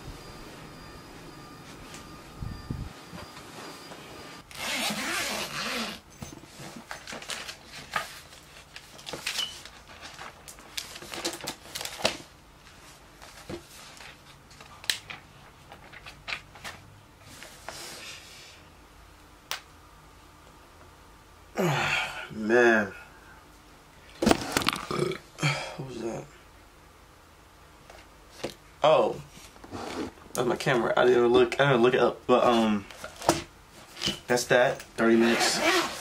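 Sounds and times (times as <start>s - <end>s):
paper rustling: 6.5s - 17.6s
chair shifting: 29.6s - 30.2s.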